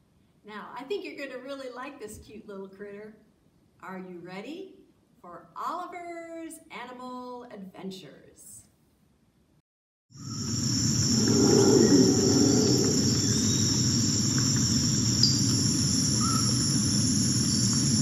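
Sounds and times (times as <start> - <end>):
insects chirring: 10.2 - 18.0
dense low background noise: 10.5 - 18.0.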